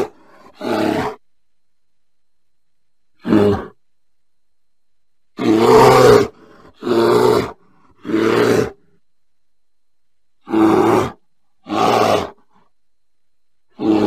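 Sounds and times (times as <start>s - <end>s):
bear growling: 0.0s - 1.2s, 3.2s - 3.8s, 5.4s - 9.0s, 10.4s - 12.7s, 13.7s - 14.0s.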